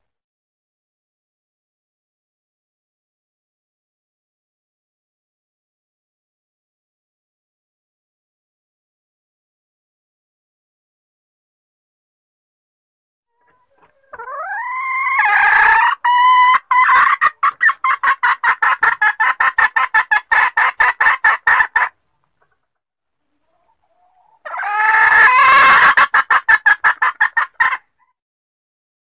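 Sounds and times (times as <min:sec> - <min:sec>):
hen calling and clucking: 0:13.3 - 0:28.2.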